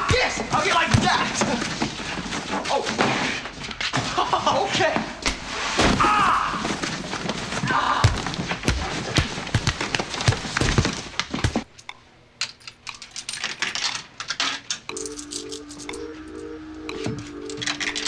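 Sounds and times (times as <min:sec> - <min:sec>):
people scuffling with thumps: 0:00.0 - 0:11.7
coins clicking into coin slot: 0:12.4 - 0:18.0.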